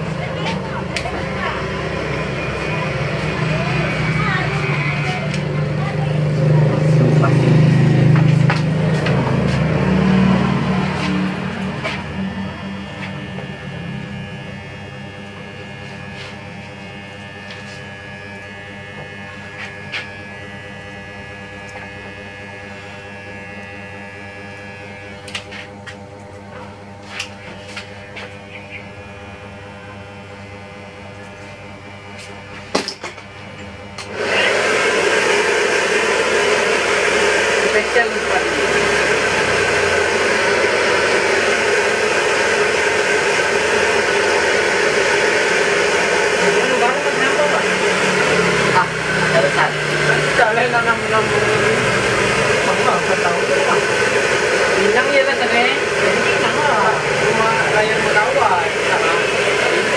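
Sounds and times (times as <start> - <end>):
steady electric hum: 0.0 - 34.3
hair dryer running: 0.0 - 59.9
scissors snipping hair: 25.2 - 25.7.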